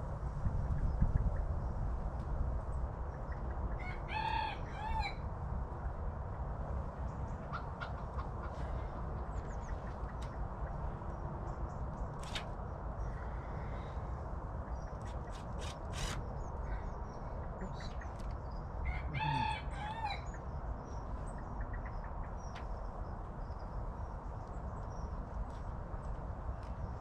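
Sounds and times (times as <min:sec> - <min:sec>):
rooster crowing: 0:03.8 - 0:05.2, 0:18.8 - 0:20.3
small birds chirping: 0:07.0 - 0:19.5.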